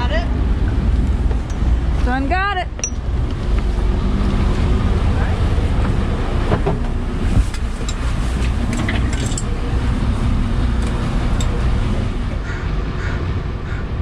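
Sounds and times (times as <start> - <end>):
boat engine idling: 0.0 - 14.0.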